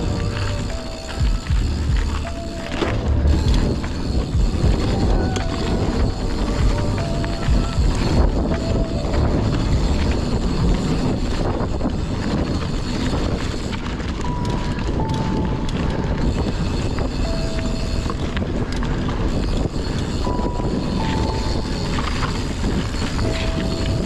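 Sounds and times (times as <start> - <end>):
bike tyres rumbling over trail: 0.0 - 24.0
wind buffeting microphone: 0.0 - 24.0.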